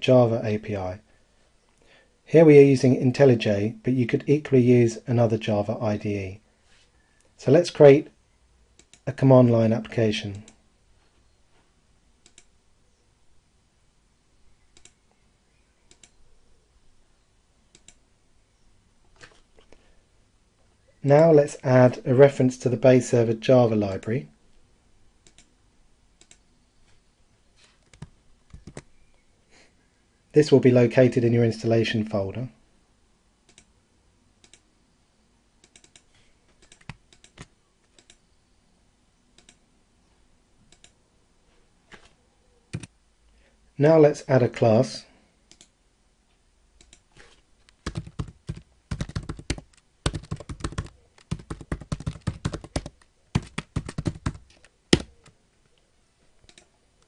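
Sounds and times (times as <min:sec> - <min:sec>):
low room hum: 0:00.0 - 0:57.0
computer mouse clicks: 0:08.8 - 0:09.0, 0:12.2 - 0:12.5, 0:14.7 - 0:15.0, 0:15.9 - 0:16.2, 0:17.7 - 0:18.0, 0:25.2 - 0:25.5, 0:26.2 - 0:26.4, 0:27.8 - 0:28.9, 0:33.4 - 0:33.7, 0:34.4 - 0:34.7, 0:35.6 - 0:38.2, 0:39.3 - 0:39.6, 0:40.6 - 0:41.0, 0:42.7 - 0:42.9, 0:45.5 - 0:45.8, 0:46.8 - 0:48.2, 0:56.4 - 0:56.7.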